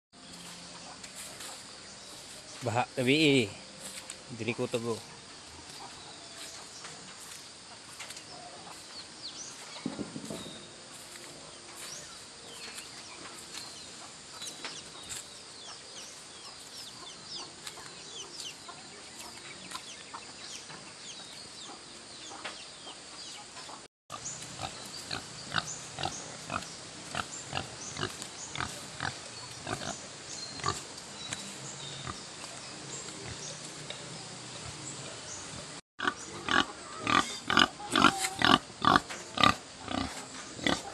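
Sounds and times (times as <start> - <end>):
pigs grunting and squealing: 36.0 - 40.9.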